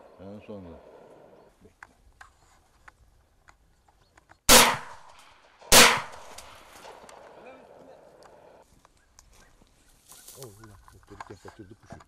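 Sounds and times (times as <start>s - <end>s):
shotgun shots: 4.5s - 7.2s.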